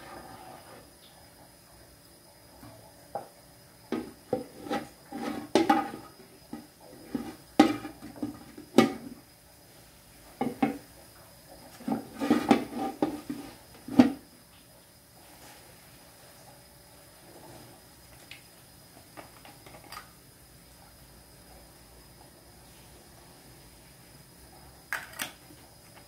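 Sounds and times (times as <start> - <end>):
pots and pans clattering: 3.9 - 9.2, 10.4 - 10.9, 11.7 - 14.3.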